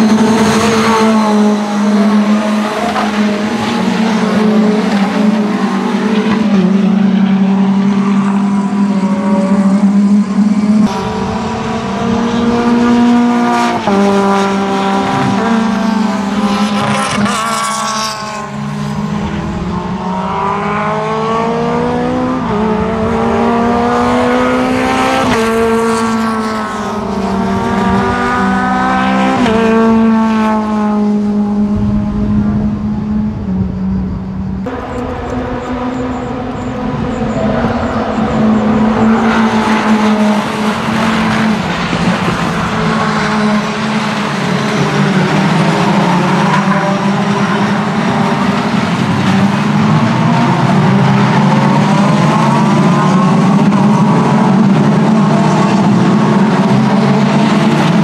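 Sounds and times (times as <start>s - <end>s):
race car engines revving: 0.0s - 58.0s
steady engine drone: 18.2s - 58.0s.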